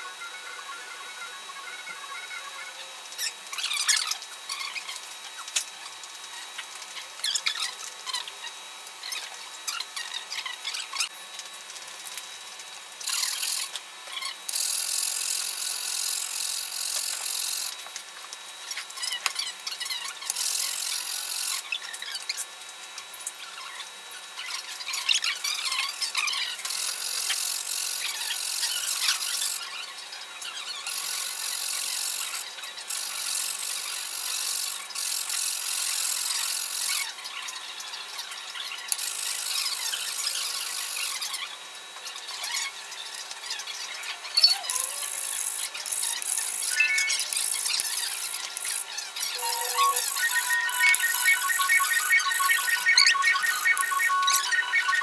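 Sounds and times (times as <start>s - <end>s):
paint marker squeaks and clicks: 49.4s - 55.0s.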